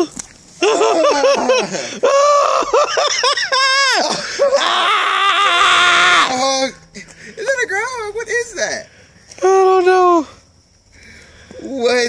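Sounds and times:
person laughing in shrieks: 0.0s - 6.4s.

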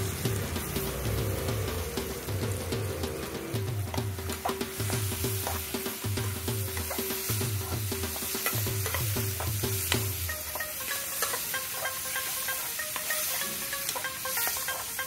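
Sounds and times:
background music: 0.0s - 15.0s
onions sizzling in oil: 0.0s - 15.0s
metal spatula scraping pot: 3.8s - 15.0s.

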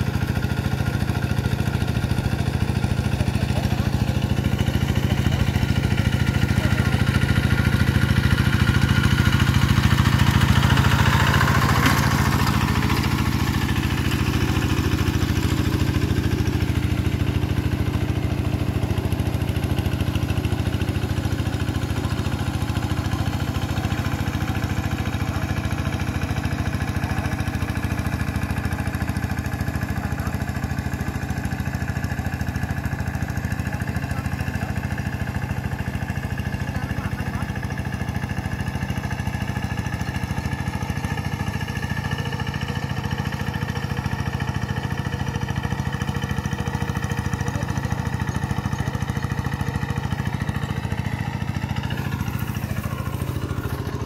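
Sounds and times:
hand tractor engine running: 0.0s - 54.0s.

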